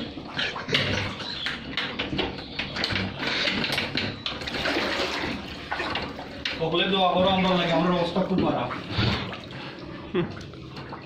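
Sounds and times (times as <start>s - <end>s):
water sloshing around wading person: 2.9s - 11.0s.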